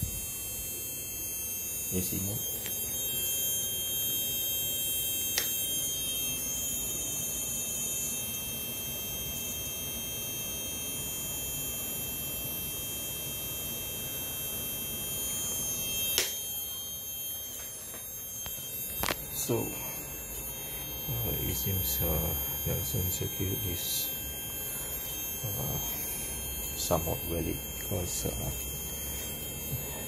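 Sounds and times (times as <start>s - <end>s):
thin high whine: 0.0s - 30.0s
low hum: 18.2s - 30.0s.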